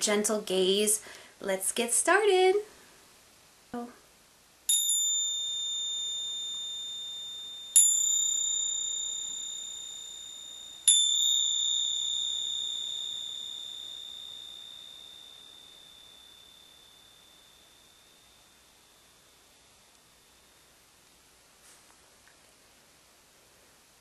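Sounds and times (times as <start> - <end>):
bell ringing: 4.7 - 20.7.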